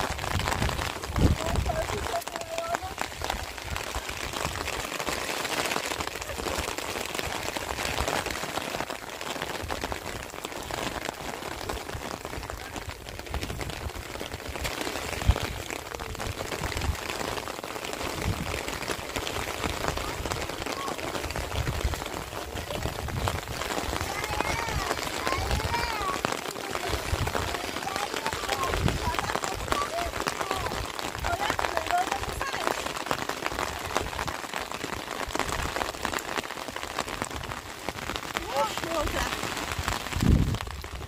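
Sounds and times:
steady rain falling: 0.0 - 41.0.

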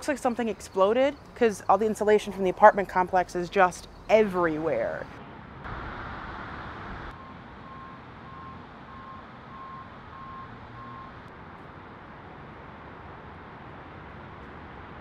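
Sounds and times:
low outdoor rumble: 0.0 - 7.6
vehicle backup alarm beeping: 7.1 - 11.2.

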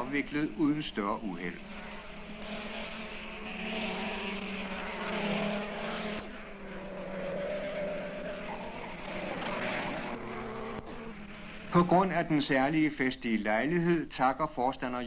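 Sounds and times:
go-kart engines droning: 0.0 - 14.0.

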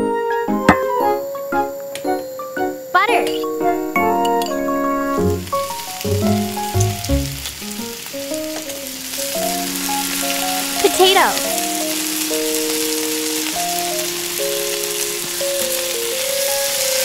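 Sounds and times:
light background tune: 0.0 - 17.0
butter sizzling in a wok: 3.7 - 17.0.

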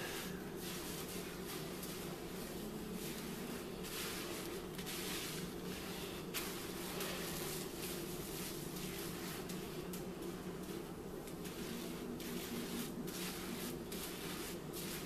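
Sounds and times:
hands rubbing wet hair: 0.0 - 15.0.

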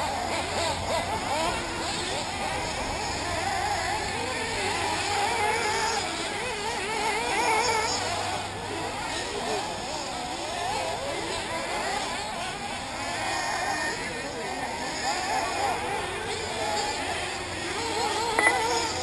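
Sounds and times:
rc car engines revving: 0.0 - 19.0.

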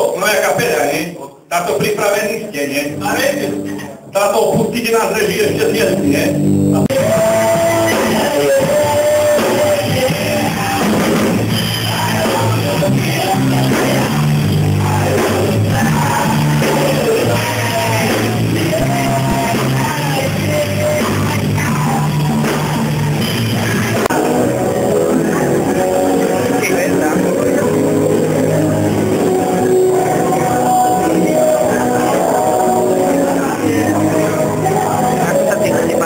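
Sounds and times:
person singing: 0.0 - 36.0
drum kit: 1.6 - 36.0
rock song: 1.6 - 36.0
bass guitar: 2.6 - 36.0.

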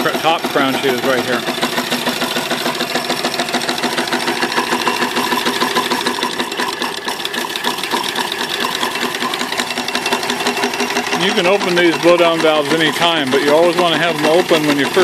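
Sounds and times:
steam engine clattering: 0.0 - 15.0.

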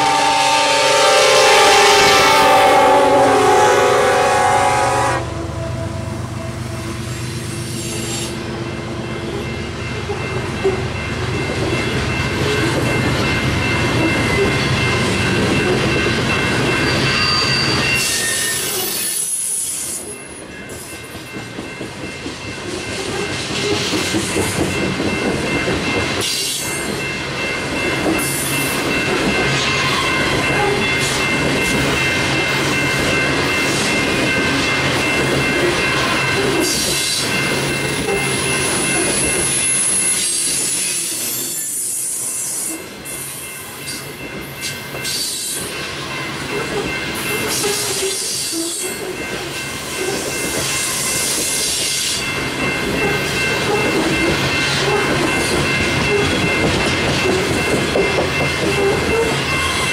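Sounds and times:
locomotive horn: 0.0 - 7.2
train wheels rumbling on rails: 0.0 - 59.9
wheels squealing: 16.8 - 19.7.

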